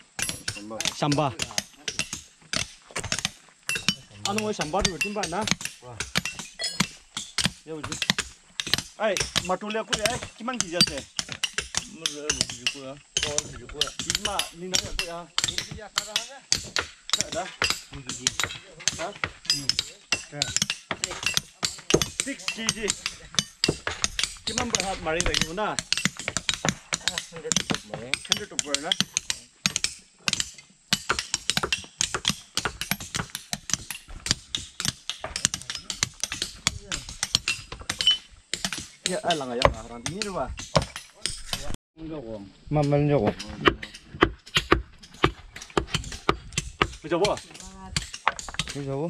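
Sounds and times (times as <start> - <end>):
sharp knocks and clicks: 0.2 - 41.8, 42.8 - 49.0
people talking: 0.4 - 2.0, 3.8 - 6.9, 7.6 - 8.2, 9.0 - 11.1, 11.8 - 16.4, 17.2 - 23.5, 24.4 - 25.8, 27.0 - 29.5, 39.1 - 43.9, 47.0 - 48.0, 48.7 - 49.0.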